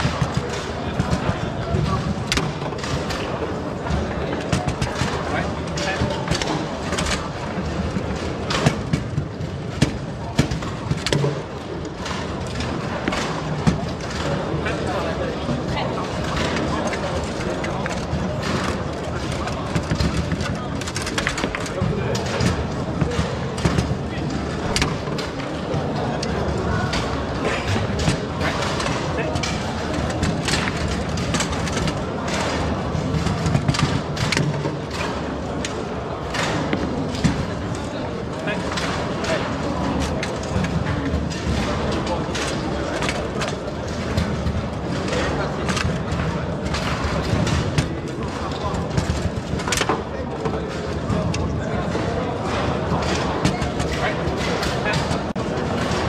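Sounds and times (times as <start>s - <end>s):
foosball ball clacking: 0.0s - 14.9s, 15.5s - 56.0s
low background din: 0.0s - 56.0s.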